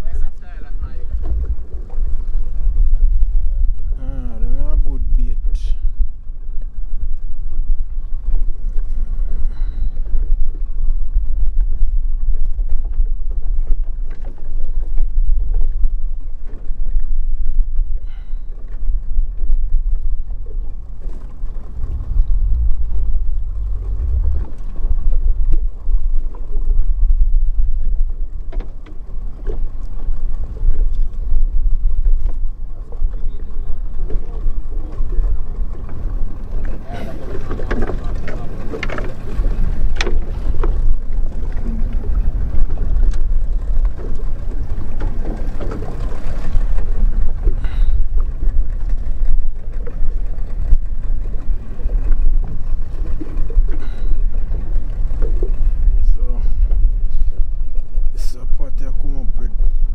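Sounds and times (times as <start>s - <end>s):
wind and sea rumble: 0.0s - 59.9s.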